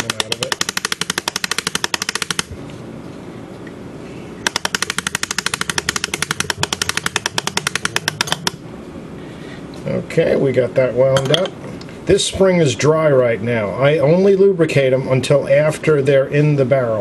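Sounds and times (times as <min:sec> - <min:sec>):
winder ratchet clicking: 0:00.0 - 0:02.5, 0:04.4 - 0:08.6.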